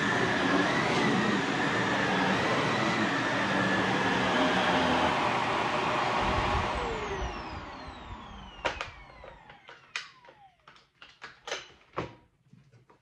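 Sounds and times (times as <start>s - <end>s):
vacuum motor winding down: 0.0s - 10.7s
plastic clicks and knocks: 8.6s - 13.0s.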